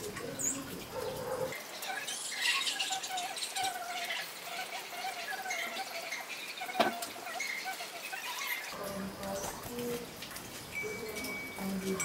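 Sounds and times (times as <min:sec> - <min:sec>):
small birds chirping: 0:00.0 - 0:12.0
faint wavering tone: 0:10.7 - 0:12.0.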